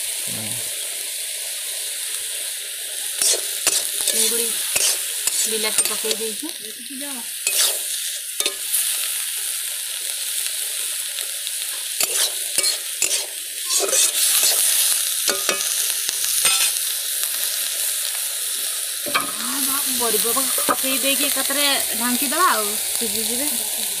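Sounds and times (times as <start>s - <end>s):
food sizzling in oil: 0.0s - 24.0s
spatula scraping pan: 3.2s - 6.4s, 7.4s - 8.6s, 12.0s - 15.8s, 16.4s - 16.8s.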